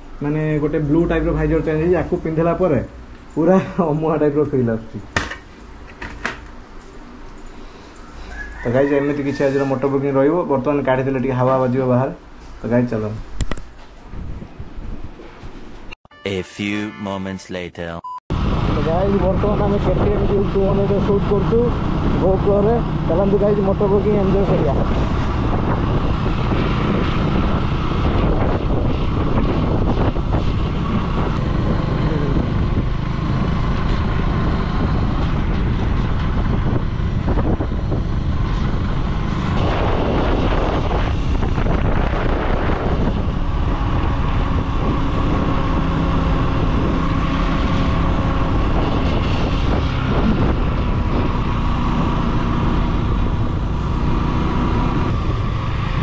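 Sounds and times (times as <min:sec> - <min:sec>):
wind buffeting microphone: 0:14.0 - 0:15.2, 0:18.4 - 0:56.0.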